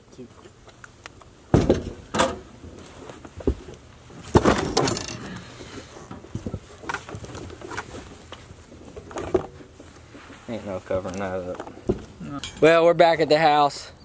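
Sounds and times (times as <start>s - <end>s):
thumps on wooden truck bed: 1.5s - 2.5s, 4.2s - 5.0s
footsteps on wooden boards: 3.2s - 4.6s.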